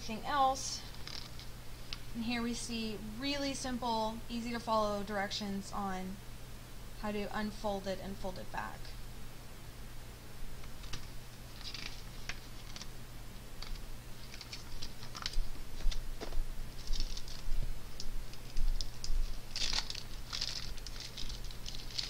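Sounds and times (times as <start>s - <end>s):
faint low hum: 0.0s - 22.0s
paper and plastic bag rustling: 13.6s - 22.0s.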